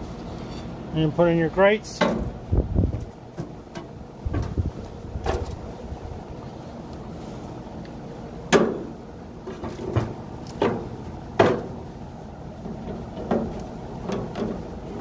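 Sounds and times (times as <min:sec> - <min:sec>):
metal grill grates clanking: 0:01.8 - 0:05.8, 0:08.4 - 0:15.0.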